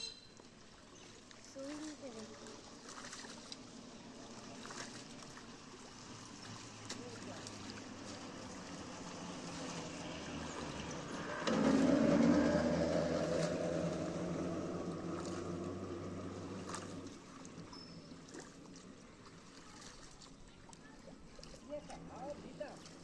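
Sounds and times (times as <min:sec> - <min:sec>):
motor engine drone: 0:02.0 - 0:18.8.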